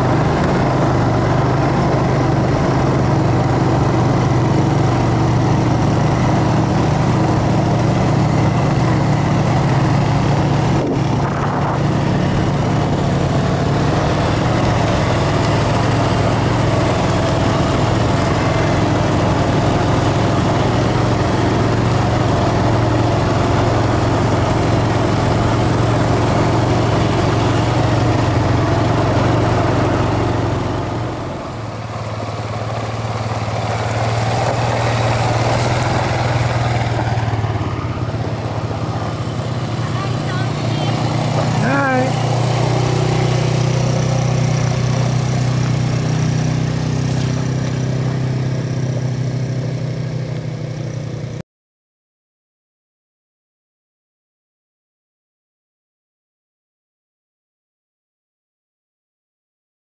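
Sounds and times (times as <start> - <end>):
atv engine running: 0.0 - 51.4.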